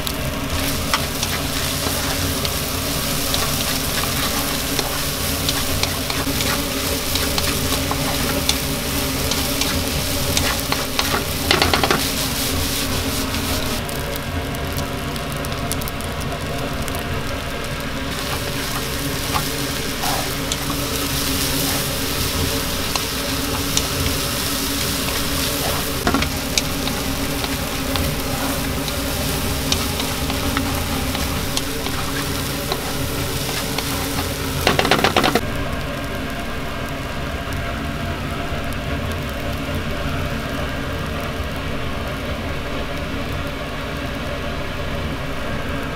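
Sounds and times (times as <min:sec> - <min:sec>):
noodles sizzling in a pan: 0:00.0 - 0:45.9
spatula knocking on pan: 0:10.4 - 0:12.1, 0:34.6 - 0:35.4
rattle of clicks: 0:24.8 - 0:35.4.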